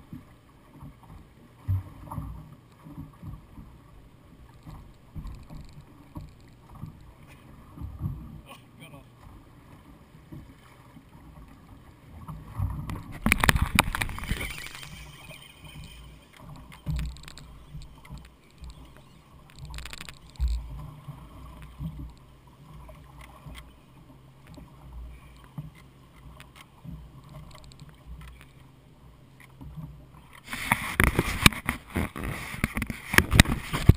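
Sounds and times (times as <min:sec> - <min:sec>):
water slapping against hull: 0:00.0 - 0:33.9
low hum: 0:11.4 - 0:25.5.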